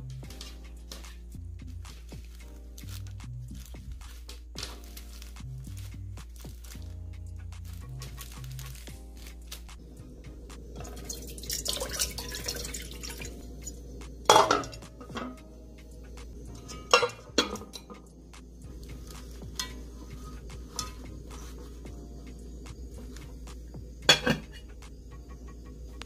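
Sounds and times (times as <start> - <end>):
soft hissing noise: 0.0 - 26.0
ceramic plate clanking in metal pot: 10.8 - 15.4, 16.6 - 18.0, 24.1 - 24.6.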